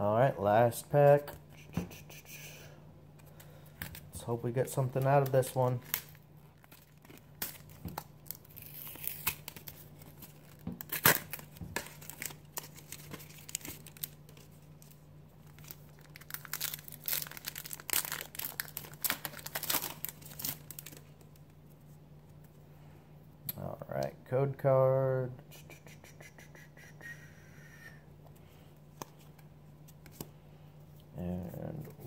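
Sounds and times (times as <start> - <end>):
card pack wrapper tearing: 5.0 - 21.1.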